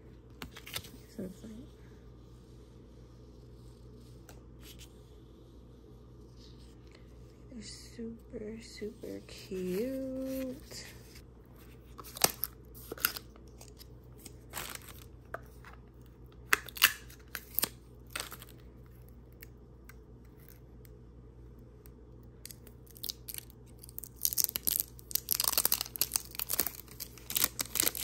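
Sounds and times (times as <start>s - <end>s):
plastic packaging crackling: 11.8s - 15.7s, 22.5s - 28.0s.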